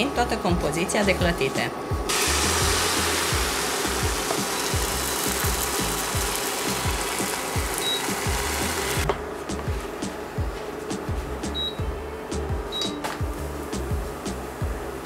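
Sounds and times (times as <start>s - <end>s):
background music with beat: 1.2s - 15.0s
batter sizzling in frying pan: 2.1s - 9.0s.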